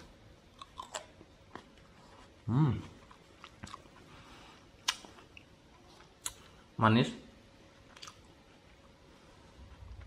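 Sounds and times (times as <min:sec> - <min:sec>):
grape being chewed: 0:00.6 - 0:04.2.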